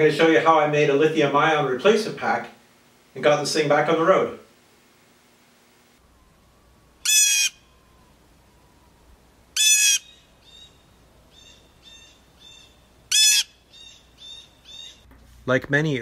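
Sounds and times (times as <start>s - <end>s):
bird squawking: 7.0s - 7.7s, 9.6s - 15.0s
faint bird calls: 7.0s - 9.0s, 9.6s - 15.1s.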